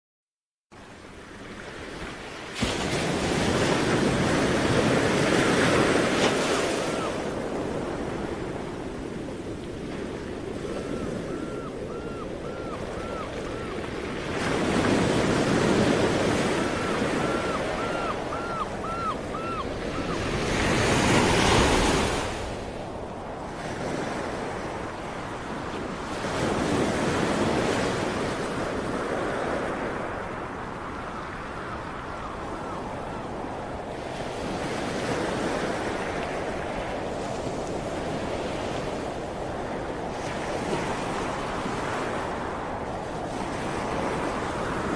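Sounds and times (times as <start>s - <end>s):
ocean waves washing: 0.8s - 44.9s.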